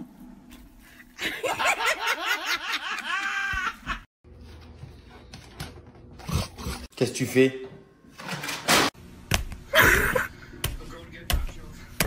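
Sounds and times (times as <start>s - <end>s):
room hum: 0.0s - 12.0s
person laughing: 1.2s - 4.1s, 9.7s - 10.4s.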